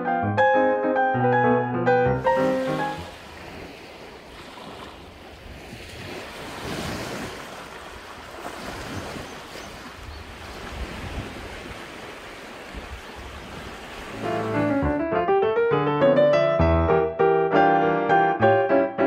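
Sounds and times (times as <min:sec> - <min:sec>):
waves washing onto pebbles: 0:02.2 - 0:14.4
wind rumble on microphone: 0:08.2 - 0:14.1.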